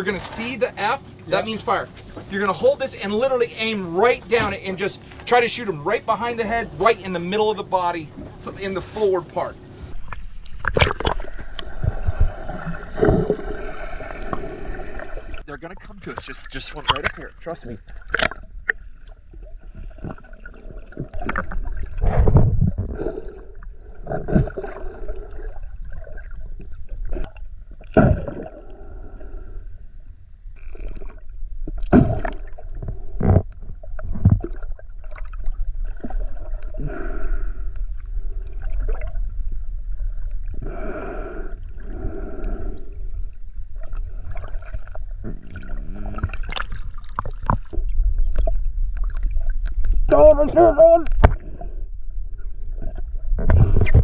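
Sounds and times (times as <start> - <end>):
low rumble: 0.0 - 54.0
muffled underwater water surges: 0.0 - 54.0.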